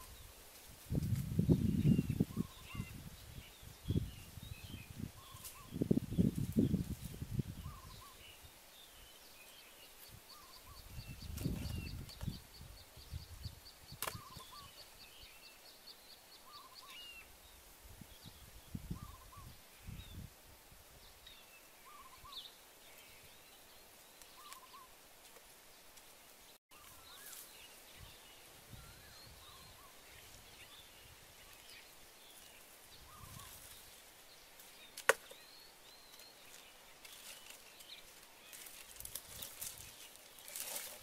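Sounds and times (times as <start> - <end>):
small birds chirping: 0.0 - 41.0
footsteps in dry brush: 24.4 - 27.7, 36.2 - 41.0.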